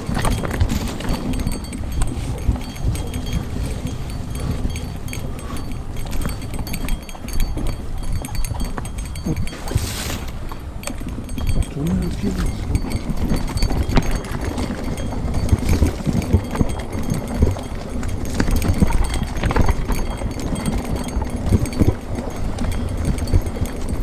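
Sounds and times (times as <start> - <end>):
tyres rumbling over stones: 0.0 - 4.4
bike knocking and rattling: 0.0 - 24.0.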